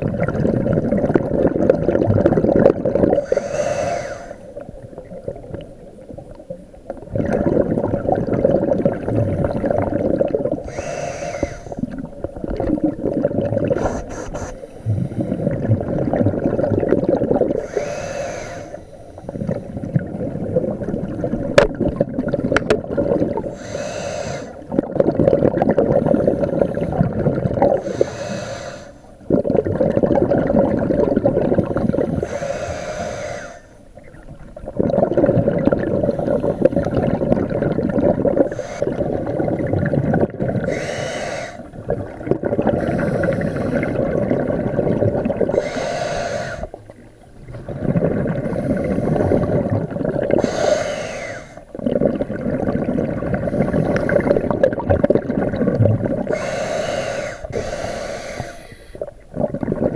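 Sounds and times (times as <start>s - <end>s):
exhaled bubbles rumbling: 0.0s - 28.5s, 29.1s - 59.9s
scuba regulator hissing inhalations: 3.1s - 4.6s, 10.6s - 11.9s, 13.7s - 15.6s, 17.5s - 20.0s, 23.5s - 24.7s, 27.8s - 29.2s, 31.7s - 33.9s, 38.4s - 39.3s, 40.6s - 41.8s, 42.7s - 44.2s, 45.4s - 46.8s, 48.4s - 49.7s, 50.3s - 51.8s, 53.4s - 54.6s, 56.2s - 59.2s.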